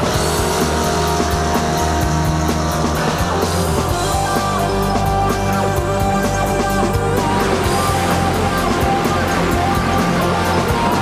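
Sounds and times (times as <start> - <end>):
rock music with steady beat: 0.0 - 11.0.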